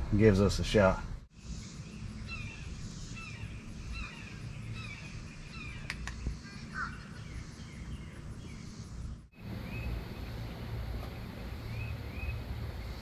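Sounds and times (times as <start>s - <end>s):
sharp click: 5.8s - 6.3s.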